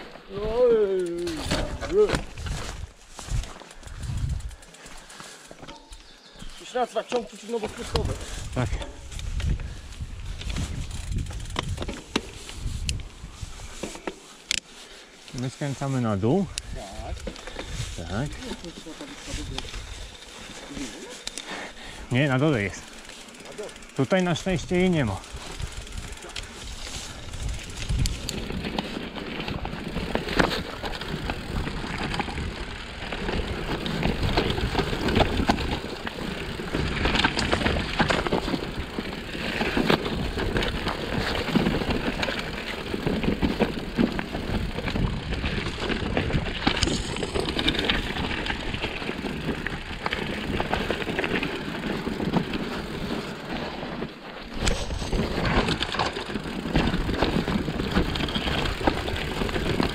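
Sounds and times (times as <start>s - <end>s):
bike knocks and rattles: 1.1s - 4.6s, 10.4s - 12.6s, 24.6s - 59.9s
tyres crunching over stones: 1.1s - 9.6s, 15.4s - 59.9s.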